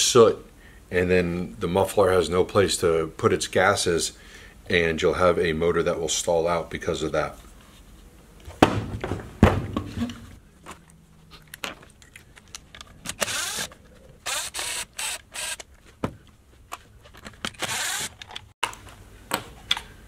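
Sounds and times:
cordless driver running: 13.1 - 15.7, 17.5 - 18.4.

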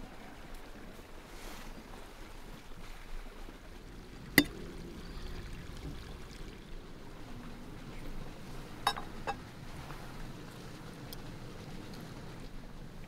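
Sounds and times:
outdoor background noise: 0.0 - 13.0
metal spoon clinking on clay bowl: 8.8 - 9.4.

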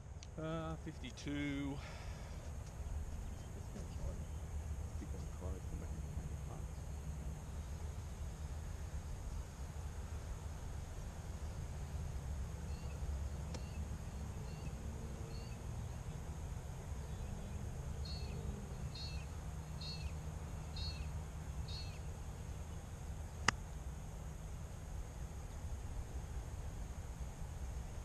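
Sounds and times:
bird chirping: 12.6 - 23.5.

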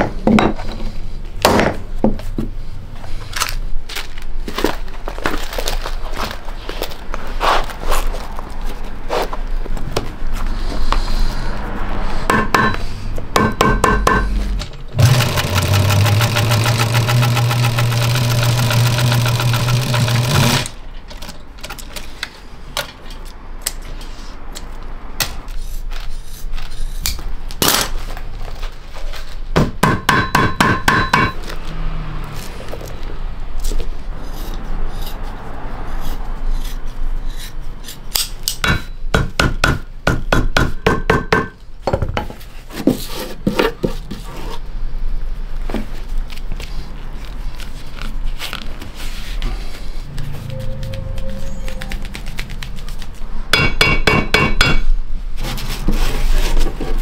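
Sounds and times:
electric machine humming: 14.7 - 20.8
shears cutting leather: 15.0 - 20.8.

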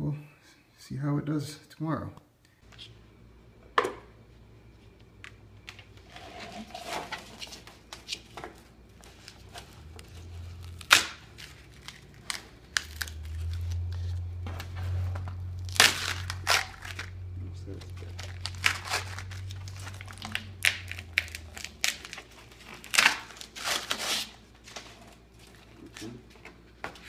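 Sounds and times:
low steady hum: 0.0 - 27.0
foam insulation crackling and crunching: 9.0 - 26.2
foam snapping: 10.6 - 11.2.

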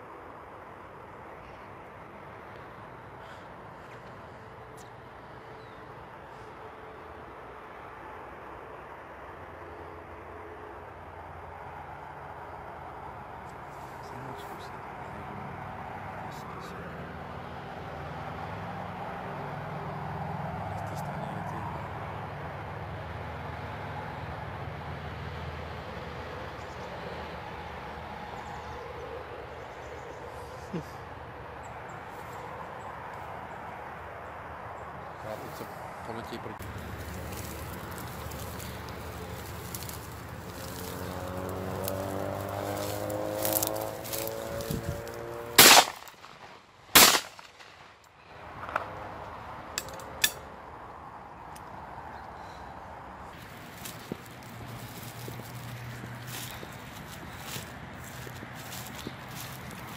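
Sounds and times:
distant motor traffic rumble: 0.0 - 59.9
shotgun shots with echo: 45.6 - 47.8.

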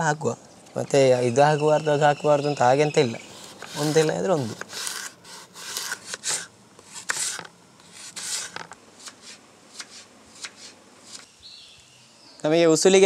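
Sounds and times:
knife slicing carrot on board: 3.6 - 11.3.

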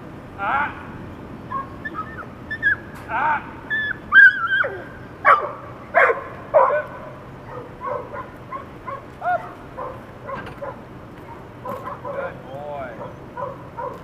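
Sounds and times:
faint high-pitched calls: 1.4 - 6.0
dog barking sharply: 4.5 - 12.3, 13.0 - 14.0.

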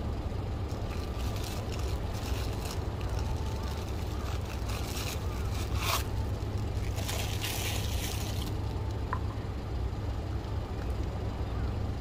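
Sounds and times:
steady low hum: 0.0 - 12.0
scraping and rustling: 0.7 - 8.8.

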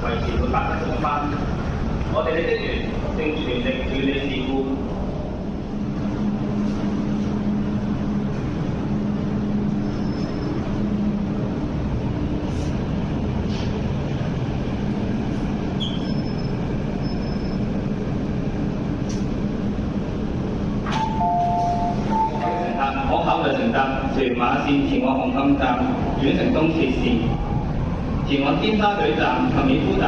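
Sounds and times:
low station rumble: 0.0 - 30.0
train equipment humming: 0.0 - 30.0
faint short high beeps: 21.0 - 22.5.

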